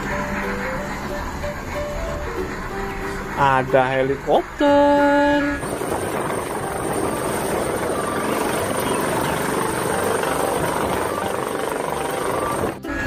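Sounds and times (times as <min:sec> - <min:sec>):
high-pitched whine: 0:04.0 - 0:13.0
helicopter rotor and engine: 0:05.6 - 0:12.8.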